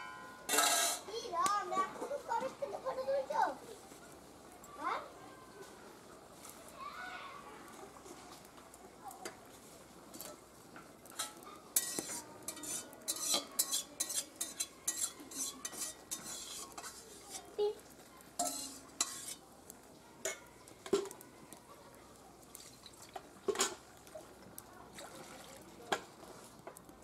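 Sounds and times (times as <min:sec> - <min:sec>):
steel spatula clinking on cookware: 0:00.0 - 0:01.1, 0:11.1 - 0:17.5, 0:18.4 - 0:19.4, 0:20.2 - 0:21.1.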